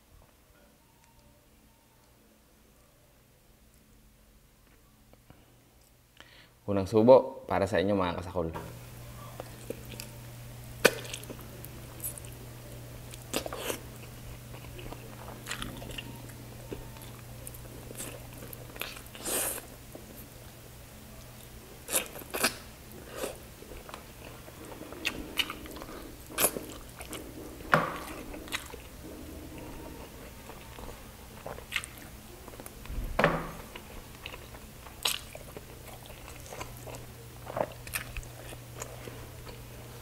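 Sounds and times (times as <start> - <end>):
low steady hum: 0.0 - 40.0
man chewing with mouth smacks: 9.2 - 10.2, 10.8 - 20.3, 21.2 - 29.0, 29.6 - 32.9, 33.5 - 39.9.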